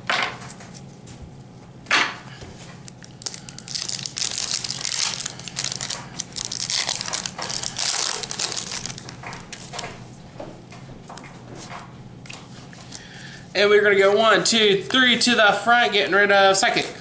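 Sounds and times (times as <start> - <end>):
foil wrapper tearing and crinkling: 2.9 - 9.7.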